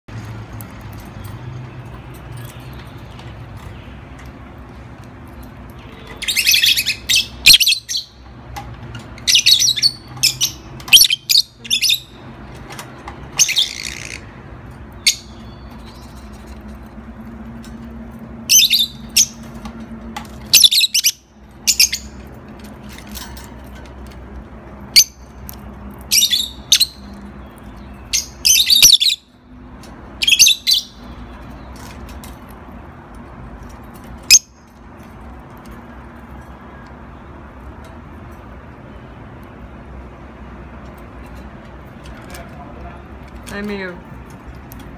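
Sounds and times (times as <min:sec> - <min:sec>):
bird chirping: 0:05.8 - 0:08.3, 0:09.2 - 0:12.6, 0:13.3 - 0:16.6, 0:18.4 - 0:19.6, 0:20.5 - 0:22.3, 0:24.9 - 0:29.4, 0:30.2 - 0:32.0.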